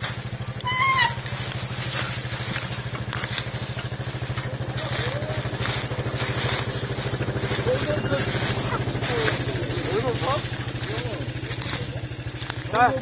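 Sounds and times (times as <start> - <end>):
dry leaves crackling: 0.0 - 13.0
quad engine idling: 0.0 - 13.0
high-pitched squeal: 0.6 - 2.2.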